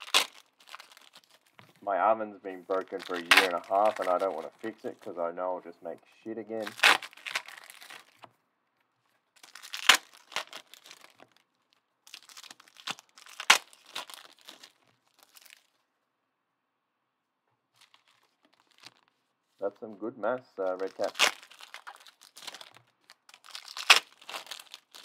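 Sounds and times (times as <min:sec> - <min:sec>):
wrapper ripping: 0:00.0 - 0:01.6, 0:02.7 - 0:05.1, 0:06.6 - 0:08.3, 0:09.4 - 0:15.8, 0:17.8 - 0:19.2, 0:20.6 - 0:25.0
foil wrapper crinkling: 0:00.0 - 0:01.7, 0:02.5 - 0:05.2, 0:06.6 - 0:08.3, 0:09.4 - 0:15.8, 0:17.8 - 0:19.2, 0:20.6 - 0:25.0
faint paper handling: 0:02.4 - 0:11.8, 0:17.7 - 0:25.0.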